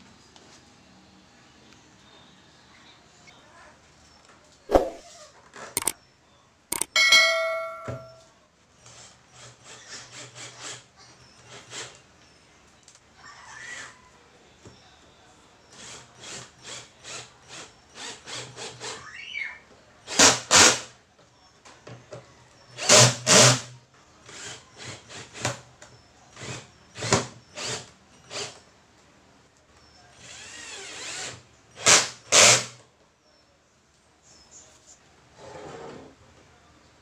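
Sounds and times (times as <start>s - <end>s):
cordless drill driving screws: 22.8s - 23.7s, 26.4s - 28.6s, 30.2s - 32.8s.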